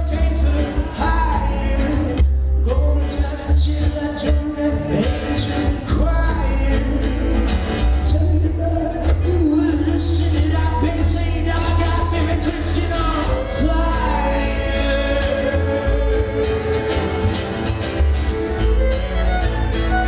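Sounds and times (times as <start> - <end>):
man singing: 0.0 - 17.8
plucked upright bass: 0.0 - 20.0
strummed acoustic guitar: 0.0 - 20.0
bowed fiddle: 12.6 - 20.0.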